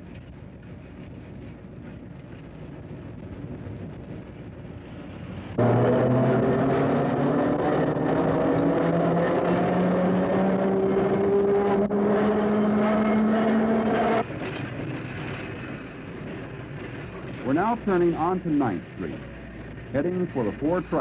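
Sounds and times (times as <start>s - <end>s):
railcar rolling rumble: 0.0s - 5.8s, 10.9s - 21.0s.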